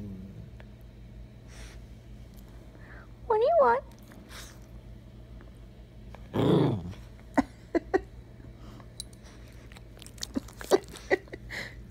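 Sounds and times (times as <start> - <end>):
dog growling grumble: 0.0 - 0.6, 6.3 - 7.0.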